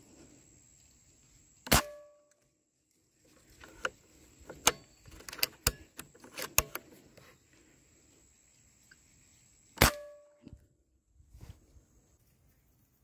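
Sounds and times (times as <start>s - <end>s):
air rifle shot: 1.7s - 2.1s, 9.8s - 10.2s.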